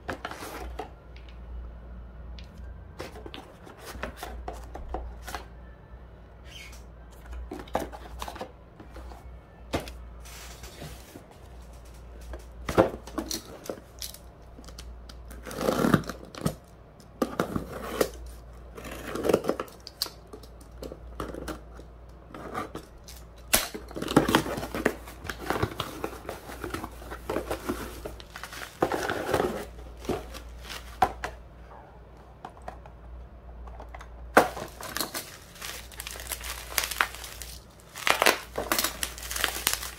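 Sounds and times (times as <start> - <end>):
packaging rustling and crinkling: 23.9 - 31.4, 34.4 - 39.9
cardboard tearing: 34.4 - 39.9.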